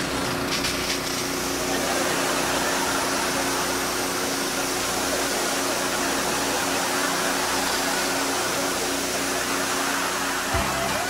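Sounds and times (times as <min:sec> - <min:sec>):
water jet spraying: 0:00.0 - 0:11.0
water pump engine hum: 0:00.0 - 0:11.0.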